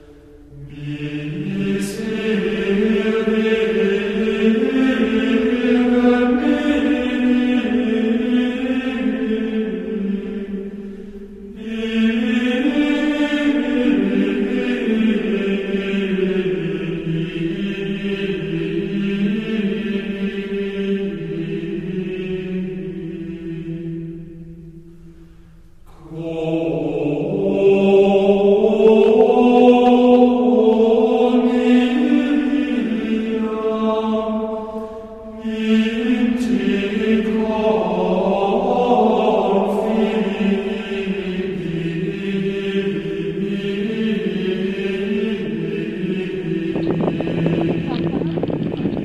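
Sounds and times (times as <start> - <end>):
slow chant-like singing voices: 0.0 - 49.0.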